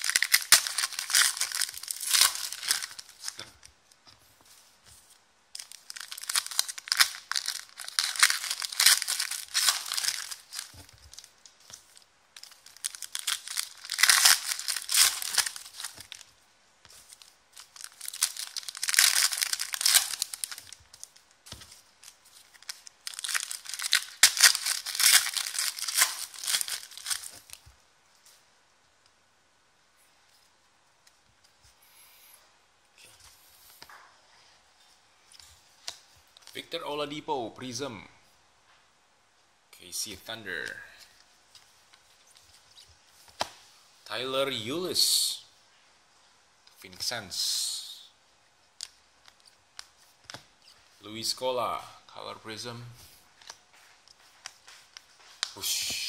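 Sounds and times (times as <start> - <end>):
foil wrappers tearing and crinkling: 0.0 - 3.5, 5.6 - 16.3, 17.0 - 27.6.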